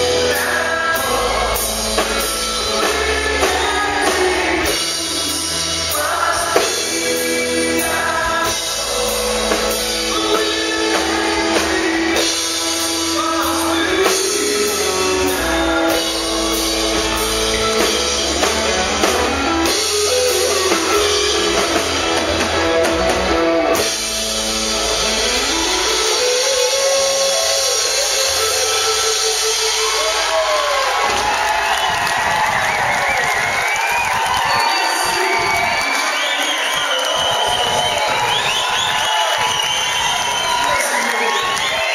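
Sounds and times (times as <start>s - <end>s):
man singing: 0.0s - 18.5s, 19.3s - 22.4s
electric bass: 0.0s - 33.6s
electric guitar: 0.0s - 36.0s
drum kit: 0.0s - 41.9s.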